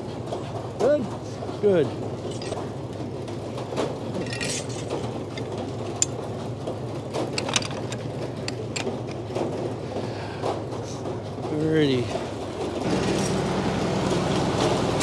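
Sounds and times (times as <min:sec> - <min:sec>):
carriage machinery clicks and clanks: 0:00.0 - 0:13.5
sawmill humming: 0:12.8 - 0:15.0.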